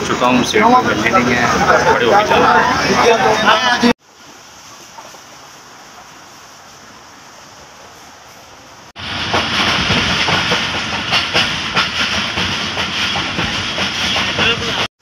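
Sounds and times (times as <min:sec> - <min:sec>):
train wheels clattering over rails: 0:09.0 - 0:14.9.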